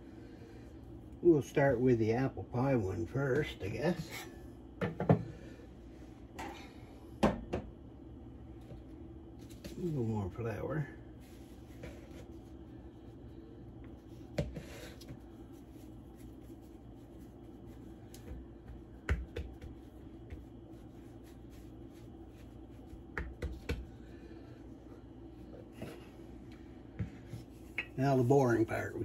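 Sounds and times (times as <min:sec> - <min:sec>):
steady low hum: 0:00.0 - 0:29.0
hands patting dough: 0:13.8 - 0:24.6.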